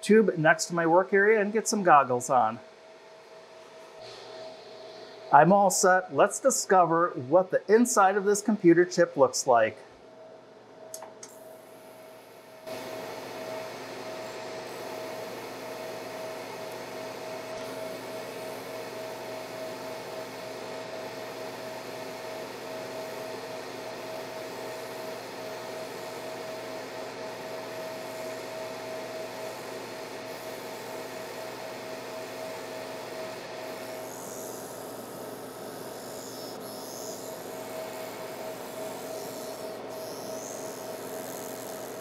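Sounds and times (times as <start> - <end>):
fume exhaust fan hiss: 0.0 - 9.8, 10.9 - 42.0
laser engraver whine: 11.2 - 42.0.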